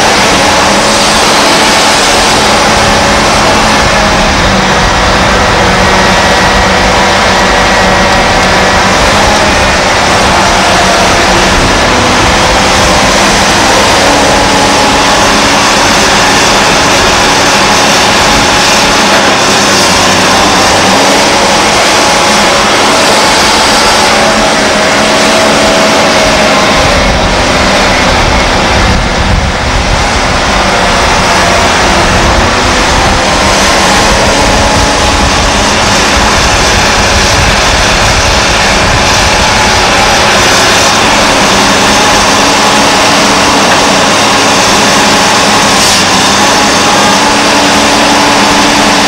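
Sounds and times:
excavator diesel engine: 0.0s - 49.0s
wavering hydraulic whine: 0.0s - 49.0s.

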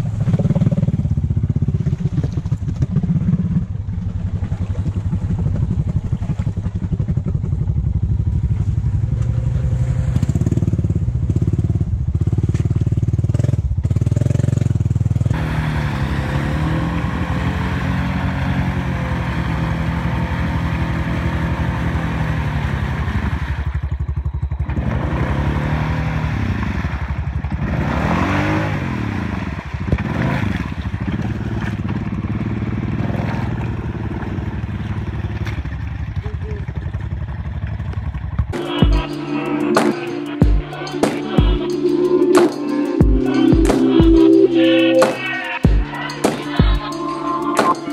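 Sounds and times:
atv engine revving: 0.0s - 47.9s
tyres spinning in mud: 29.2s - 38.4s.

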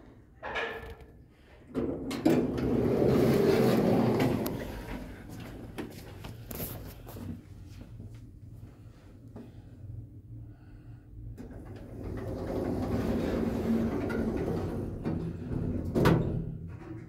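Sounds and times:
elevator doors sliding open: 1.8s - 5.2s, 11.4s - 17.0s.

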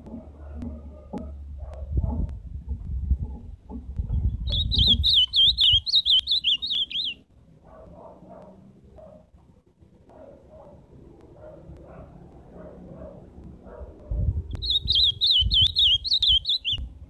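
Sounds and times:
bird singing warbling phrase: 4.2s - 7.2s, 14.6s - 16.9s.

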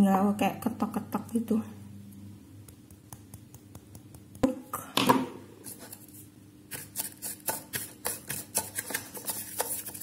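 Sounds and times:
plastic spoon scraping sugar: 5.6s - 10.0s.

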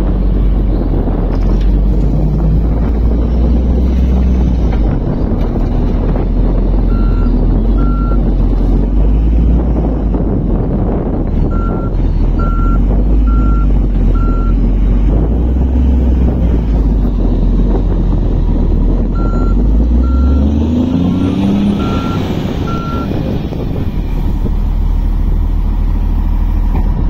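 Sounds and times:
diesel engine running heavily: 0.0s - 27.0s
reversing alarm beeping: 19.2s - 20.5s, 21.2s - 23.1s.

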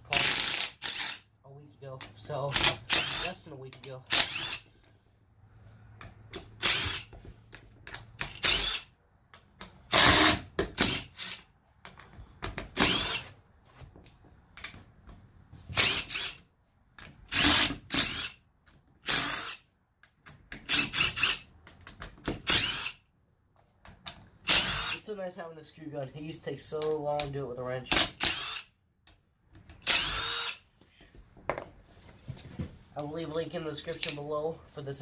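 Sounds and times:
impact driver bursts: 0.2s - 1.2s, 4.1s - 4.7s, 6.6s - 7.1s, 8.2s - 8.9s, 9.9s - 11.4s, 12.8s - 13.2s, 22.4s - 23.0s, 24.4s - 25.0s, 29.8s - 30.6s.

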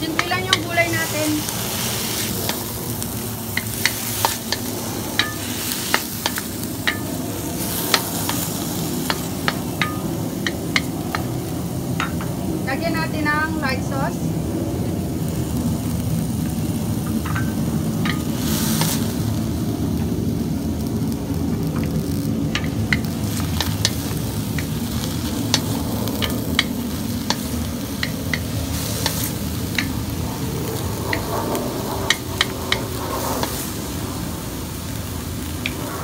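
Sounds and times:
vegetables sizzling in a wok: 0.0s - 36.0s.

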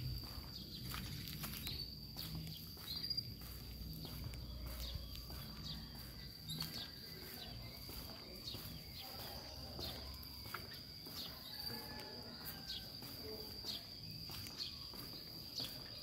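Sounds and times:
sharp bird chirps: 0.0s - 11.6s
soft footsteps on pavement: 0.0s - 16.0s.

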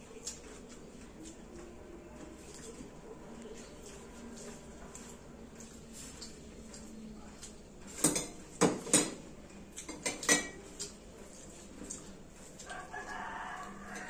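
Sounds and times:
hand mixing rice: 10.6s - 14.0s.

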